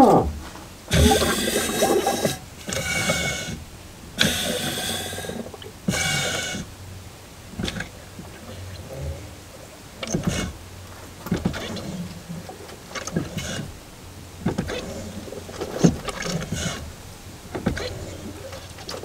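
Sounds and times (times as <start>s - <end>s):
air bubbling in brake fluid: 0.0s - 6.7s.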